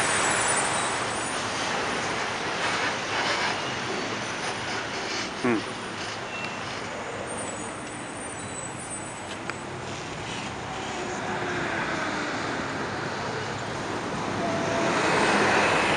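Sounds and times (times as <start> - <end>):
road traffic: 0.0 - 15.9.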